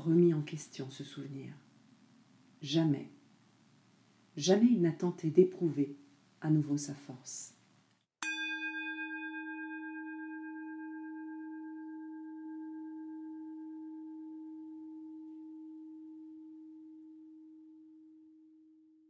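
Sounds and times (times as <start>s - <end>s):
singing bowl ringing: 8.2s - 18.5s.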